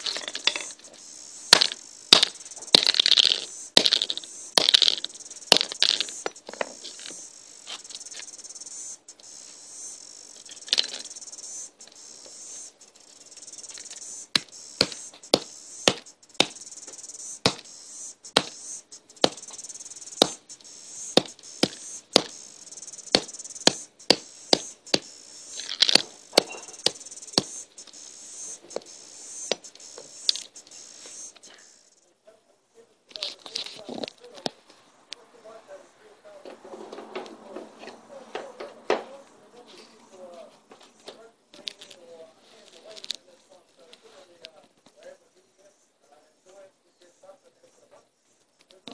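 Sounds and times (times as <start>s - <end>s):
device being smashed: 0.0s - 0.8s, 1.5s - 7.2s, 25.6s - 27.5s
cicadas buzzing: 0.0s - 32.2s.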